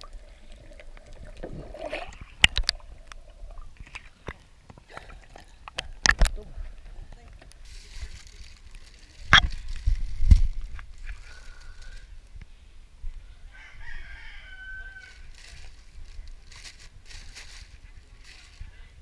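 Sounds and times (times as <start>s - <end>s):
plastic bag rustling: 7.6s - 12.0s, 15.3s - 18.7s
faint rooster crowing: 13.3s - 15.3s.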